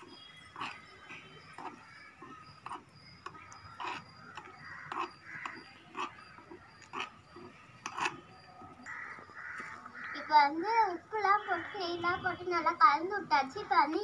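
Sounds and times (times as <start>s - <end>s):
crow cawing: 4.3s - 5.7s, 8.8s - 10.8s.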